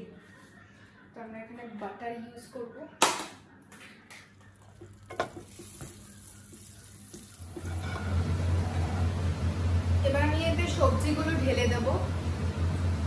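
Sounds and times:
range hood fan humming: 0:04.3 - 0:13.0
butter sizzling in frying pan: 0:04.6 - 0:10.0
spatula pushing in pan: 0:04.7 - 0:09.1.

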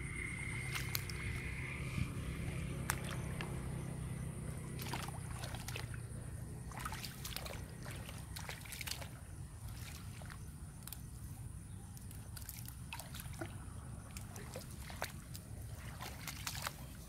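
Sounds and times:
low rumble: 0:00.0 - 0:08.4
feet sloshing in muddy water: 0:00.2 - 0:17.0
soft splashes: 0:00.4 - 0:17.0.

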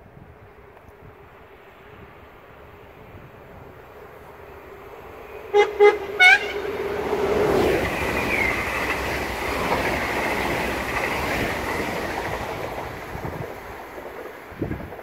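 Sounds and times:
train passing at speed: 0:00.0 - 0:15.0
train horn: 0:05.5 - 0:07.0.

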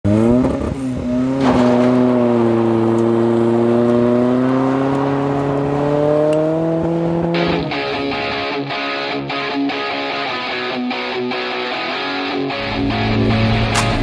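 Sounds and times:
truck engine at high revs: 0:00.0 - 0:08.3.

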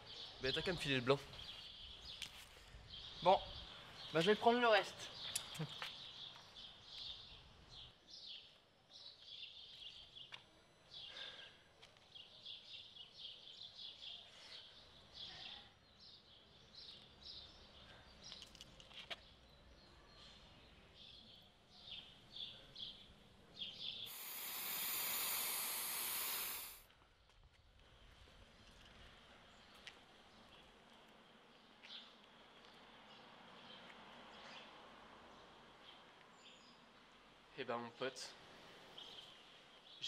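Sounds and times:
birds chirping: 0:10.9 - 0:26.8
aerosol spray can hissing: 0:24.1 - 0:26.8.

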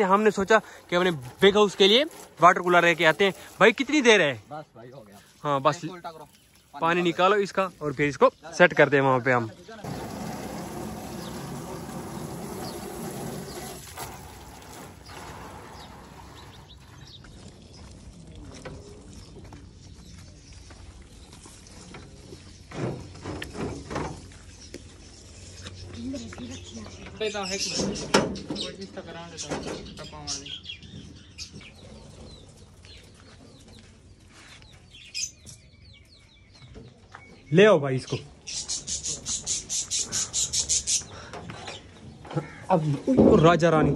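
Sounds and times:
water pouring and splashing: 0:00.0 - 0:20.1, 0:20.8 - 0:25.8
birds chirping and calling: 0:05.0 - 0:43.9.

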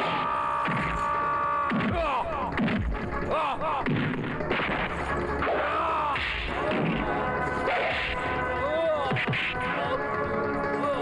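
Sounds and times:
dramatic background music: 0:00.0 - 0:11.0
punch impact sound effects: 0:03.8 - 0:08.2.

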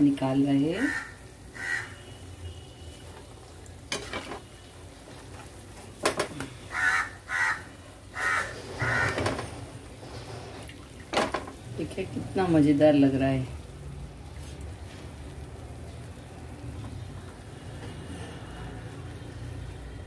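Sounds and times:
oil sizzling: 0:00.0 - 0:20.0
bird calling: 0:06.7 - 0:09.3.

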